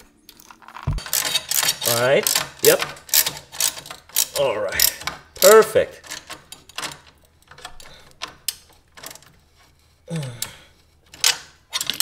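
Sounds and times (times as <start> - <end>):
ratchet wrench clicking: 1.1 - 5.6.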